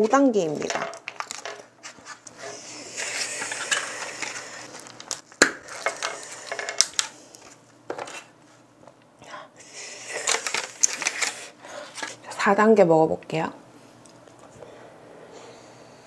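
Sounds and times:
snack packet crinkling: 0.4 - 8.3, 10.0 - 12.2.

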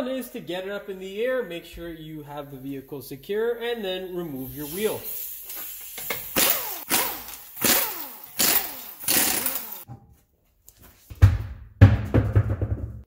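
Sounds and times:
impact wrench bursts: 4.5 - 9.9.

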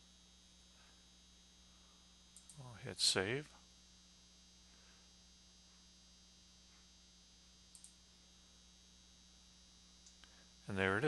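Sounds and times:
faint electrical hum: 0.0 - 11.0
computer mouse clicks: 2.4 - 2.6, 7.7 - 8.0.

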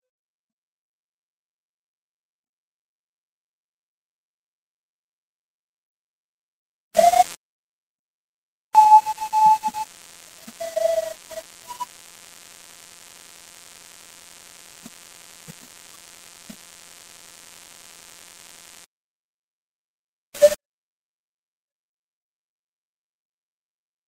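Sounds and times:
static hiss: 7.0 - 7.4, 8.8 - 18.9.

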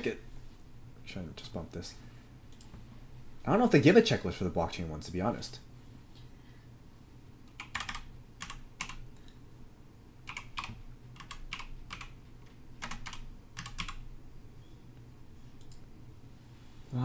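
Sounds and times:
faint low hum: 0.0 - 17.0
keyboard keys tapping: 7.5 - 9.0, 10.3 - 14.0.

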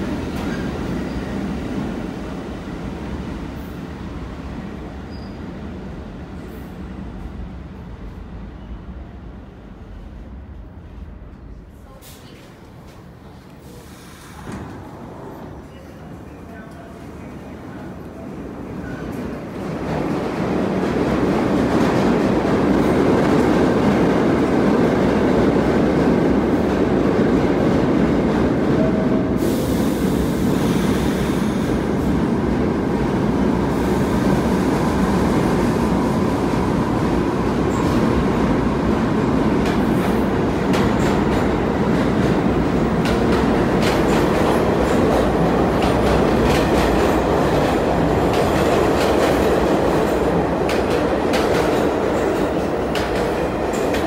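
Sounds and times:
subway train rumbling: 0.0 - 54.0
air hiss: 13.6 - 14.6, 29.4 - 31.8.

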